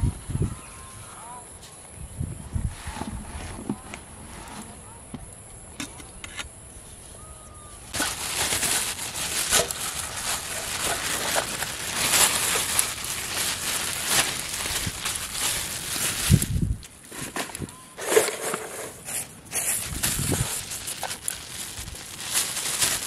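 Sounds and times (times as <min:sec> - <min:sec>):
plastic bag crinkling: 0:07.9 - 0:23.0.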